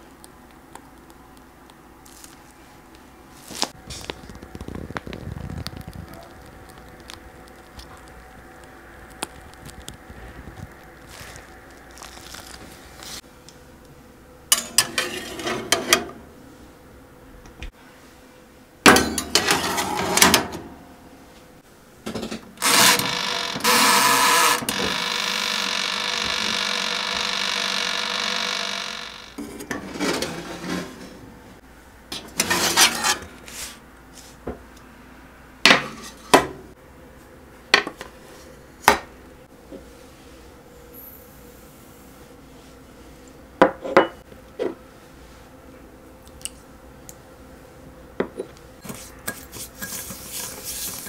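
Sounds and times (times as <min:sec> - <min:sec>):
oven humming: 0:00.0 - 0:17.7, 0:18.5 - 0:34.0
oven door and controls clacking: 0:22.1 - 0:31.0.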